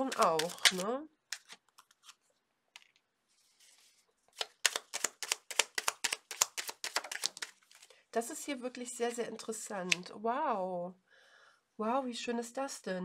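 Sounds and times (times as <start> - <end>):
cards clicking: 0.0 - 2.2, 4.4 - 7.8
cards sliding on cloth: 3.3 - 7.9.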